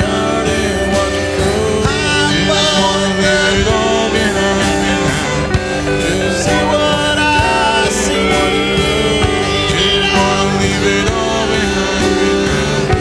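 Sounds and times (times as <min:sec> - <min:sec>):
rock song with guitar: 0:00.0 - 0:13.0.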